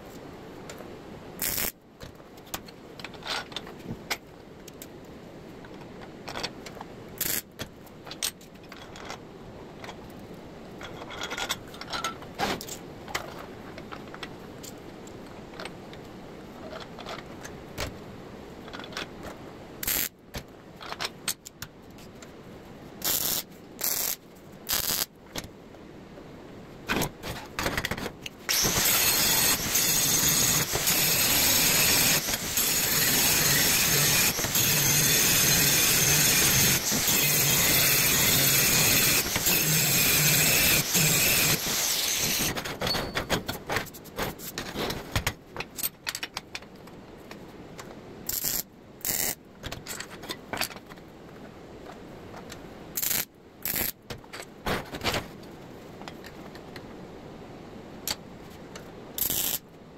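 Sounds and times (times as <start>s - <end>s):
welding arc crackling: 1.4s - 1.7s, 19.8s - 20.1s, 23.0s - 25.1s, 59.2s - 59.6s
steel parts clinking and scraping: 10.8s - 14.8s, 27.2s - 46.7s.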